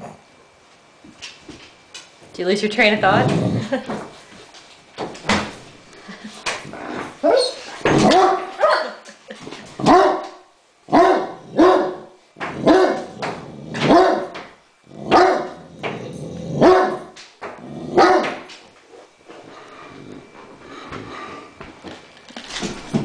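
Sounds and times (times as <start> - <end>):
dog barking loudly: 7.2 - 9.0, 9.8 - 10.3, 10.9 - 13.2, 13.9 - 14.4, 15.1 - 15.6, 16.6 - 17.1, 18.0 - 18.4.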